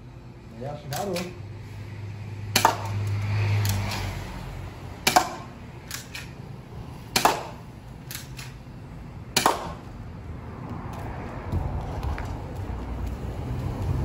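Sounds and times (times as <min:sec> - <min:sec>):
airsoft pistol shots: 0:02.5 - 0:03.0, 0:05.0 - 0:06.3, 0:07.1 - 0:08.5, 0:09.4 - 0:09.8.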